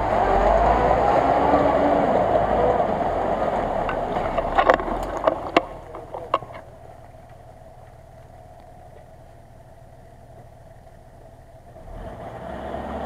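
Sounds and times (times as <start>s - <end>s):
pickup engine running: 0.0s - 13.0s
tyres splashing in mud: 3.0s - 7.3s.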